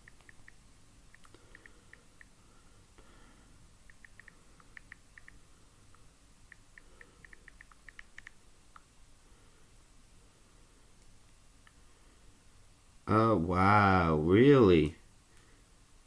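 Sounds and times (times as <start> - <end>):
keyboard typing: 0.0 - 2.3, 3.9 - 5.4, 6.5 - 8.4.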